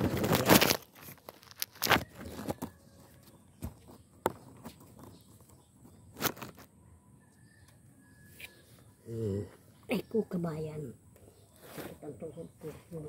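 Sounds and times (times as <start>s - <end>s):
dry leaves rustling and crunching: 0.0s - 2.7s.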